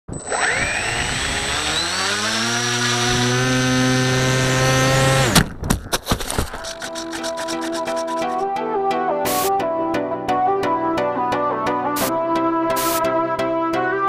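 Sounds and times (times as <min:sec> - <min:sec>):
electric motor and propeller whining: 0:00.1 - 0:05.5.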